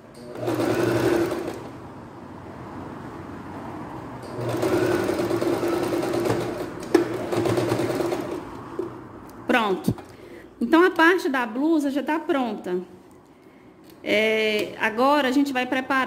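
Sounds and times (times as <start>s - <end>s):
sewing machine stitching: 0.2s - 1.7s, 4.3s - 8.4s.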